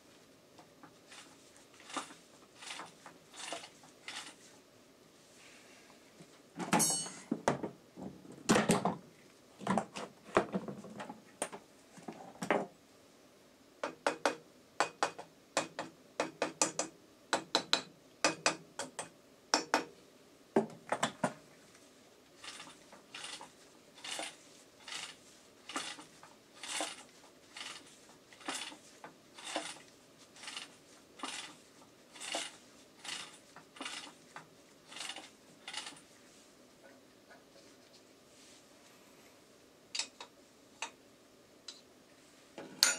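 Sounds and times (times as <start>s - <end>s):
metallic clinks and knocks: 6.7s - 7.3s.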